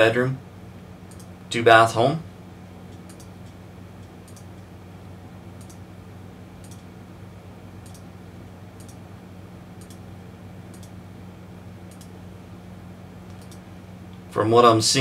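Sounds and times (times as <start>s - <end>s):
low electrical hum: 0.0s - 15.0s
computer mouse clicking: 1.1s - 1.3s, 2.9s - 4.6s, 5.6s - 5.8s, 6.6s - 6.9s, 7.8s - 8.1s, 8.8s - 9.0s, 9.8s - 10.0s, 10.7s - 11.0s, 11.9s - 12.2s, 13.3s - 13.6s.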